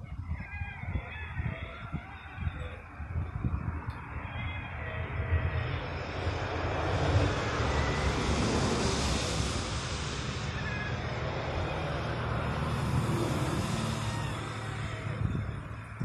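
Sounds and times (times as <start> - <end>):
low rumble: 2.5 - 16.0
passing motor rushing: 4.0 - 16.0.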